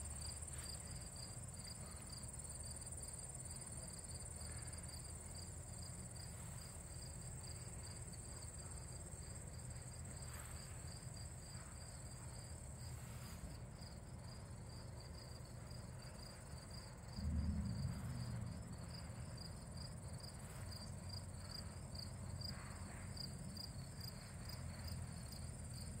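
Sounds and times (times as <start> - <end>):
crickets trilling: 0.0 - 26.0
low rumble: 17.0 - 22.2.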